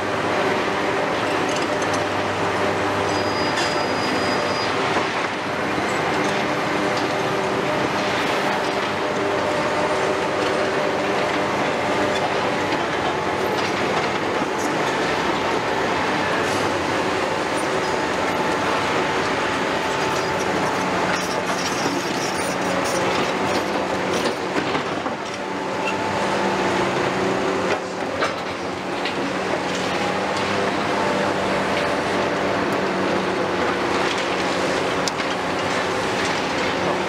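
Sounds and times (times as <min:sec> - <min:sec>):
diesel engines and hydraulics droning: 0:00.0 - 0:37.0
steel crawler tracks clanking: 0:00.5 - 0:37.0.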